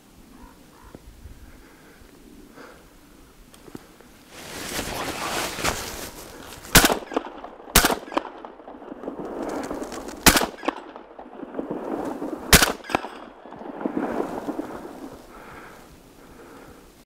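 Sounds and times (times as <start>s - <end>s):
fainter crack: 3.5s - 15.6s
shotgun shots: 6.7s - 8.8s, 10.2s - 14.4s.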